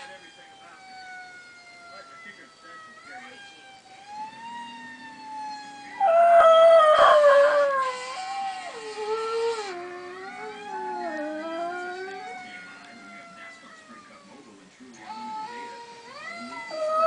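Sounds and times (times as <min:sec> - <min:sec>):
faint siren wailing: 0:00.0 - 0:17.0
dog howling: 0:04.0 - 0:14.4, 0:15.0 - 0:17.0.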